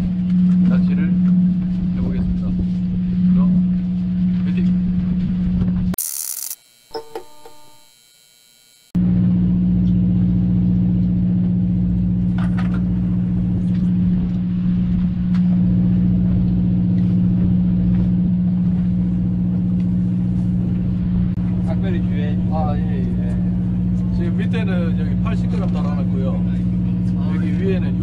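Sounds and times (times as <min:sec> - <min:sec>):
boat machinery humming: 0:06.0 - 0:28.0.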